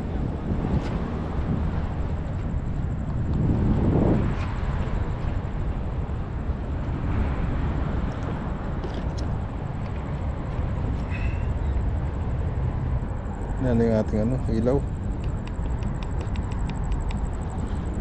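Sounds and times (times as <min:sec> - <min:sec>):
low outdoor rumble: 0:00.0 - 0:18.0
faint ticks: 0:15.1 - 0:17.6.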